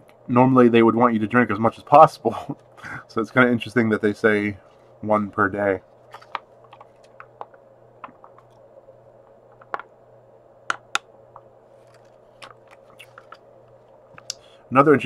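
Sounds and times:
low steady hum: 0.0s - 15.0s
drink pouch crackling: 5.9s - 8.6s, 11.8s - 14.4s.

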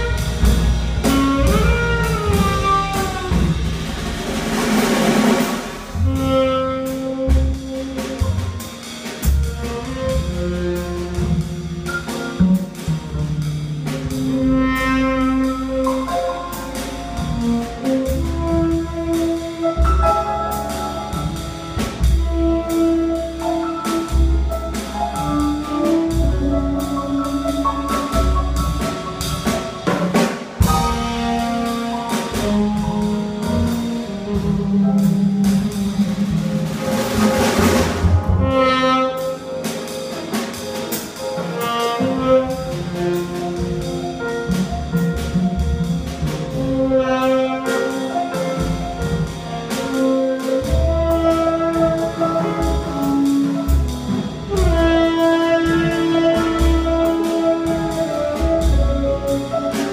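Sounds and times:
tenor saxophone playing: 0.0s - 3.8s, 5.8s - 8.6s, 38.3s - 39.8s, 41.4s - 44.2s, 49.6s - 59.9s
drum kit: 0.0s - 59.9s
walking double bass: 0.0s - 59.9s.

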